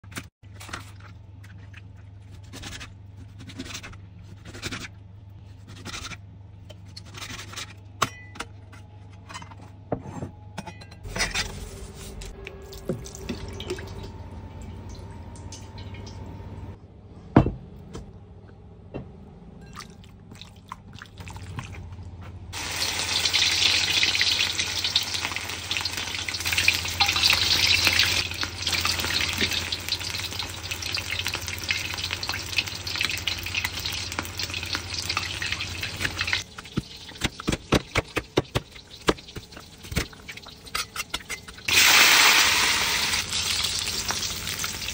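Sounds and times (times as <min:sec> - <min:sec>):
steady low hum: 0:01.1 - 0:22.5
chicken sizzling in hot oil: 0:22.6 - 0:37.6, 0:41.6 - 0:44.9.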